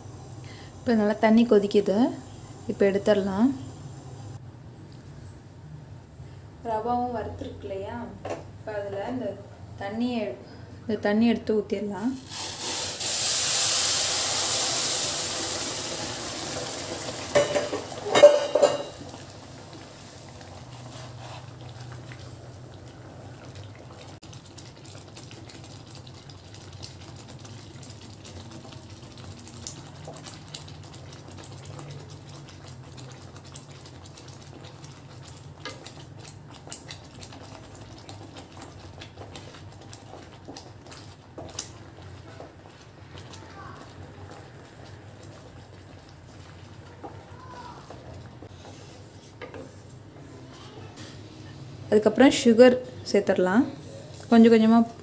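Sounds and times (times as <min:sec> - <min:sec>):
water hissing in hot pan: 0:12.2 - 0:22.5, 0:23.4 - 0:49.2
cookware knocks: 0:17.4 - 0:19.0
wooden spatula scraping: 0:20.6 - 0:22.2, 0:38.2 - 0:51.6.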